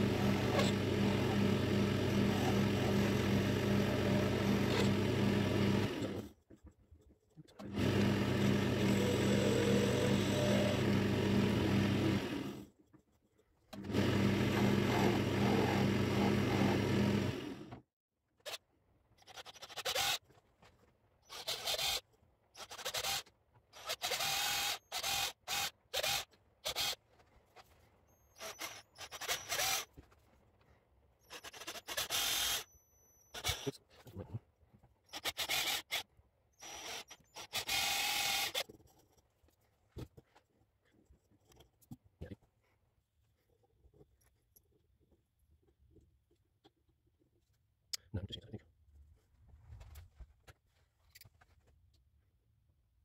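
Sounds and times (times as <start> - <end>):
wood lathe cutting wood: 0.0 - 6.2, 7.6 - 12.6, 13.8 - 17.8
cordless drill boring holes: 0.0 - 6.3, 7.6 - 12.6, 13.8 - 17.8, 19.3 - 20.2, 21.3 - 22.0, 22.6 - 27.0, 28.3 - 29.9, 31.3 - 33.7, 35.1 - 38.7.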